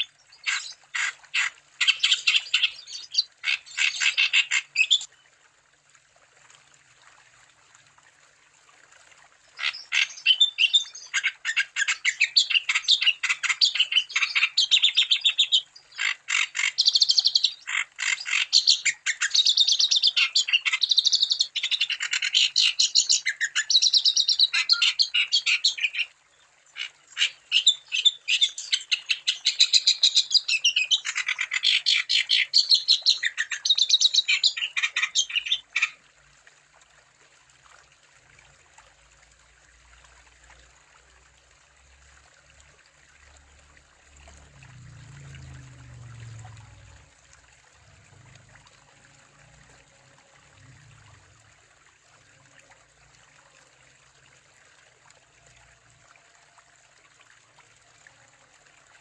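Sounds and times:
songbird chirping and trilling: 0:01.4 - 0:05.1.

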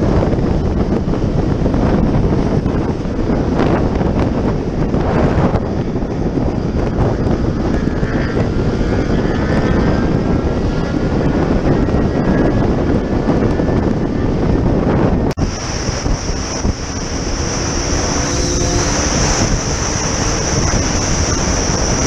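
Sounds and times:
wind buffeting: 0:00.0 - 0:22.0
motorcycle engine running: 0:15.4 - 0:22.0.

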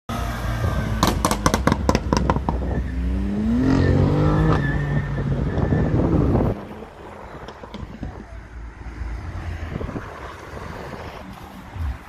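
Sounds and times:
car engine accelerating hard: 0:00.1 - 0:08.2
exhaust crackling and popping: 0:01.0 - 0:03.5, 0:04.4 - 0:08.4.

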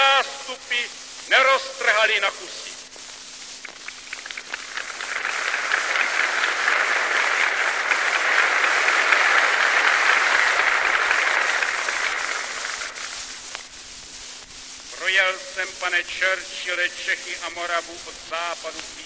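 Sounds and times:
crowd applauding: 0:03.8 - 0:13.2.

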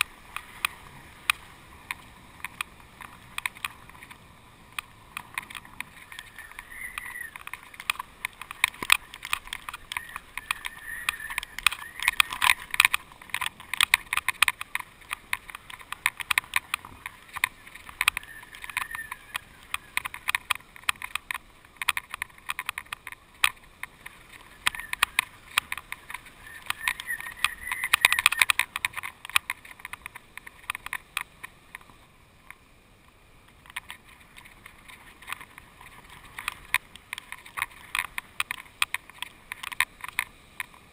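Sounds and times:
faint wind hiss: 0:00.0 - 0:40.9
camera rig rattling: 0:05.1 - 0:31.3.

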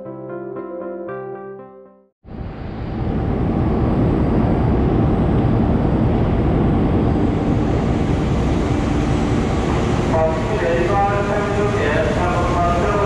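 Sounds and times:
diesel train engine rumbling: 0:02.3 - 0:13.0.

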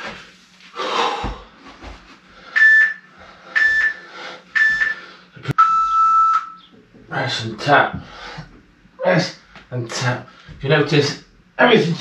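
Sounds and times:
interval timer beeping: 0:02.6 - 0:03.0, 0:03.6 - 0:04.0, 0:04.6 - 0:05.0.

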